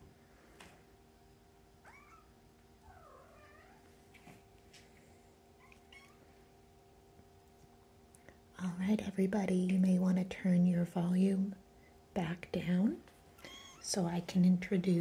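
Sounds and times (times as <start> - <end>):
soft ticks and scuffles on a rug: 3.8 - 5.2.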